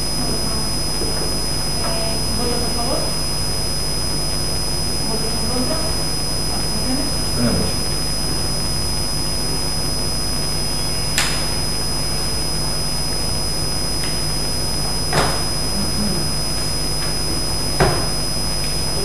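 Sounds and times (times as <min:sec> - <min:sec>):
microphone hiss and hum: 0:00.0 - 0:19.0
thin high whine: 0:00.0 - 0:19.0.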